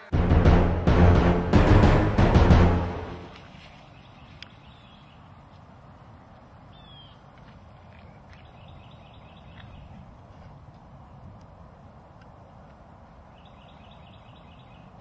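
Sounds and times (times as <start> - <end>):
bird chirps: 6.7 - 7.2, 13.3 - 15.0.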